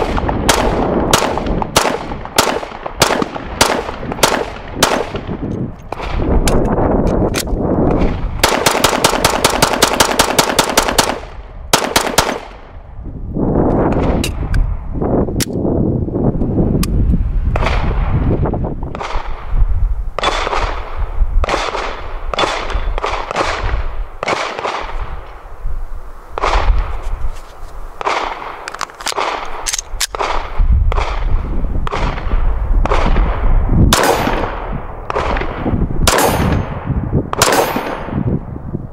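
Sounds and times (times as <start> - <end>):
pistol shots echoing: 0.0 - 6.2, 8.0 - 12.7, 21.4 - 25.0, 31.9 - 38.2.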